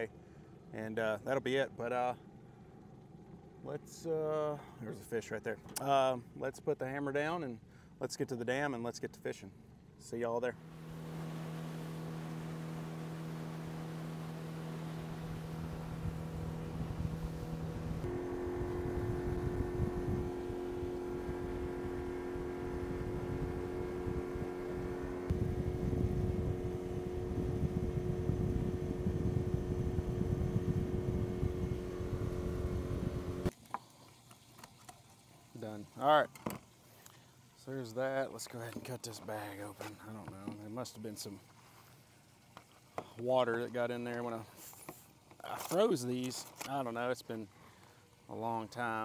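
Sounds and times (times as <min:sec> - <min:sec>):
boat motor running: 0:10.6 - 0:33.5.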